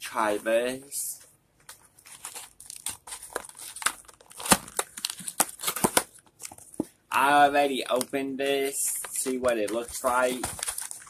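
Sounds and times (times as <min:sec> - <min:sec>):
cardboard box crinkling: 0:01.9 - 0:06.8, 0:08.8 - 0:11.0.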